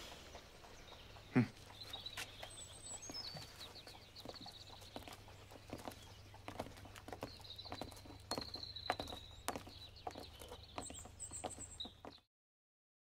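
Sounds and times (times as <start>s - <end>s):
bird singing: 0.0s - 12.3s
horse hooves on cobbles: 0.0s - 12.3s.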